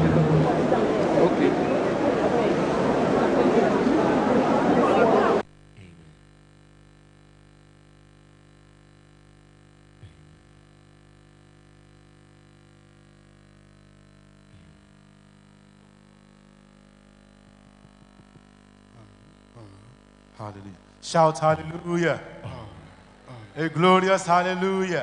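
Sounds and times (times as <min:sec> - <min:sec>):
faint electrical hum: 0:00.0 - 0:25.0.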